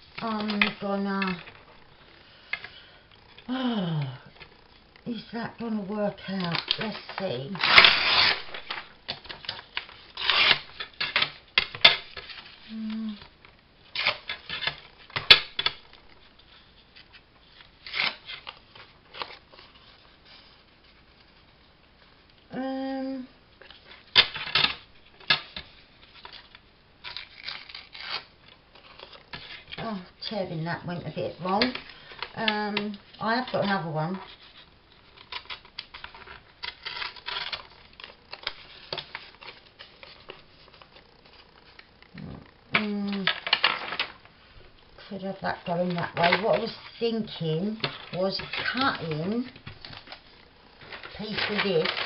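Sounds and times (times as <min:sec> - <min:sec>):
paper rustling: 0:23.6 - 0:52.0
paper crinkling: 0:25.0 - 0:52.0.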